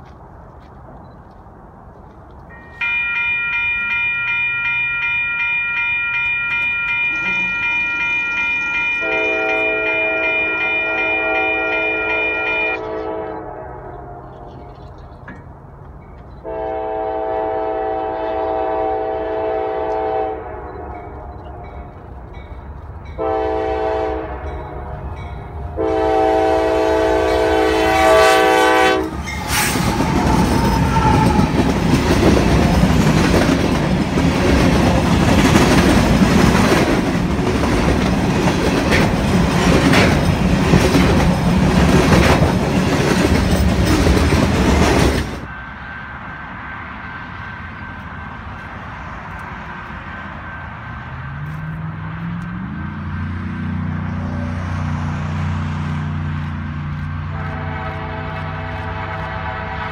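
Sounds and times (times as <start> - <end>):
locomotive air horn: 6.0 - 14.6, 16.4 - 21.9, 23.2 - 31.8, 57.2 - 59.9
train wheel clatter: 29.0 - 45.5.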